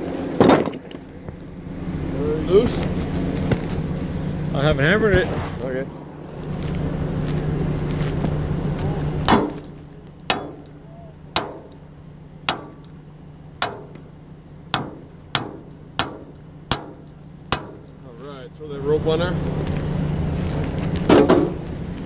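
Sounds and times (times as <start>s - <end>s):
loud rumble: 0.0s - 10.8s
low engine hum: 0.0s - 22.0s
hammer striking steel: 9.3s - 9.7s, 10.3s - 10.8s, 11.4s - 11.8s, 12.5s - 13.0s, 13.6s - 14.1s, 14.7s - 18.0s.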